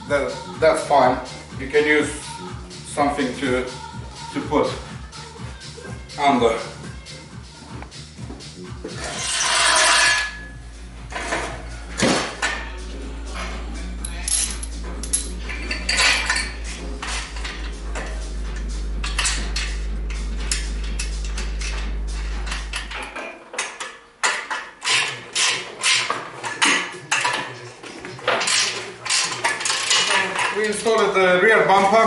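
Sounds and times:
steady low hum: 0:10.2 - 0:23.2
bolts and spanners clanking on metal: 0:20.4 - 0:27.6.

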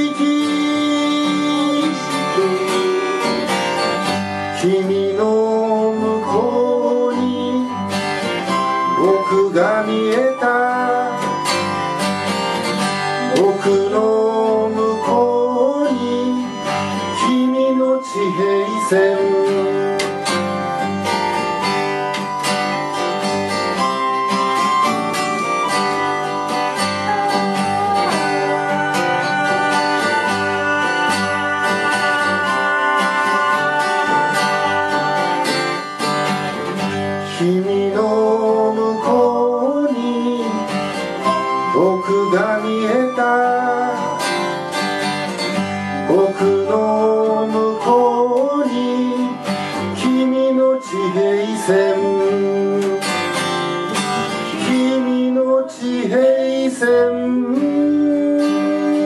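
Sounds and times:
keyboard harmonica notes: 0:00.0 - 0:56.2
strummed acoustic guitar: 0:00.0 - 0:59.0
voice gliding in pitch: 0:25.9 - 0:35.5.

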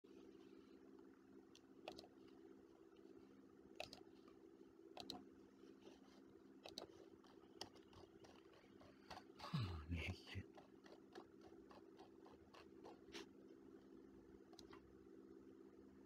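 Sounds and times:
low steady hum: 0:00.1 - 0:16.0
computer mouse clicks: 0:01.5 - 0:02.4, 0:03.8 - 0:05.3, 0:06.6 - 0:09.4, 0:10.4 - 0:13.2, 0:14.5 - 0:14.8.

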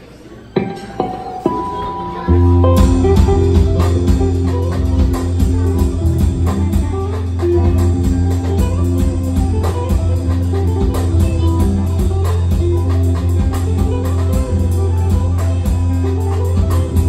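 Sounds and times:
steady low tone: 0:00.6 - 0:10.7
electric guitar single notes: 0:00.6 - 0:17.0.

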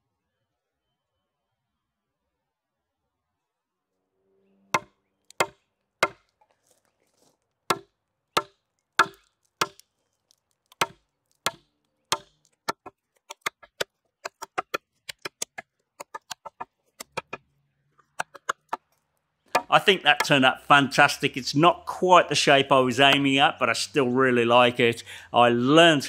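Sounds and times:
axe chopping wood: 0:04.8 - 0:06.3, 0:07.7 - 0:09.8, 0:10.7 - 0:17.4, 0:18.1 - 0:18.8, 0:19.5 - 0:20.4.

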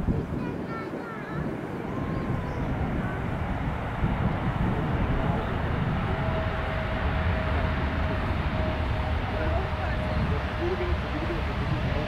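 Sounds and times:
distant jet engine rumble: 0:00.0 - 0:12.0
jet engine whine: 0:00.0 - 0:12.0.

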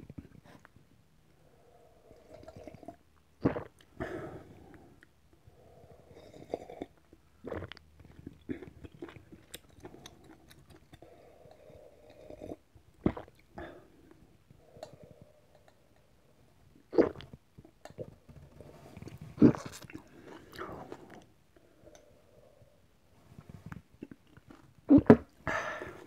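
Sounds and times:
person slurping and gulping broth: 0:02.1 - 0:04.8, 0:06.0 - 0:13.5, 0:16.9 - 0:21.3.

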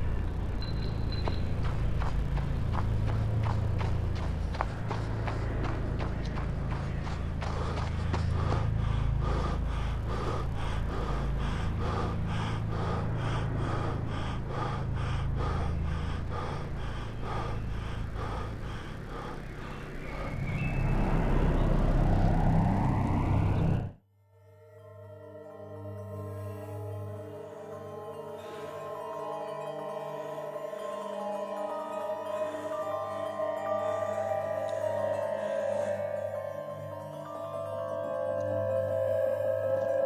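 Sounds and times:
low drone: 0:00.0 - 0:24.0, 0:25.3 - 0:40.0
man panting hard: 0:01.9 - 0:20.5
rising swell: 0:19.9 - 0:24.0.

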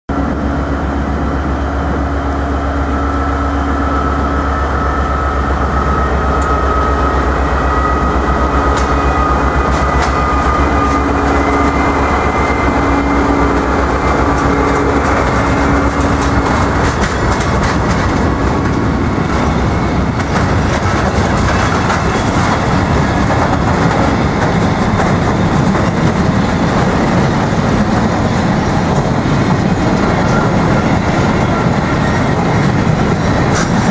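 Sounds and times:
freight wagons rumbling: 0:00.1 - 0:33.9
locomotive engine drone: 0:00.1 - 0:33.9
wheels clacking over rail joints: 0:08.2 - 0:33.9.

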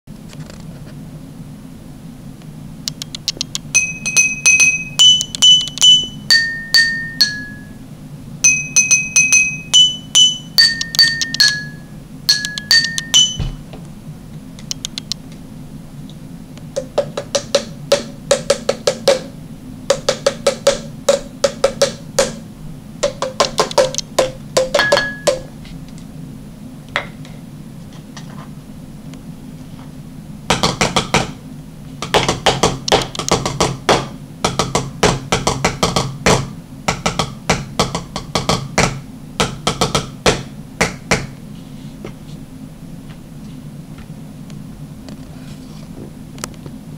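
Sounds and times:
struck drinking glasses melody: 0:03.8 - 0:07.8, 0:08.4 - 0:13.6.

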